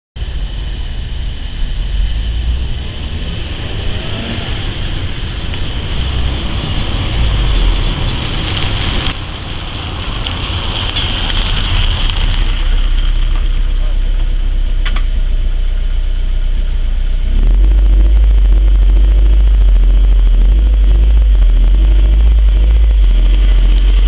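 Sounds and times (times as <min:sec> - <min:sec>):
wind rumble on microphone: 0:00.2 - 0:24.0
car driving past: 0:02.2 - 0:09.2.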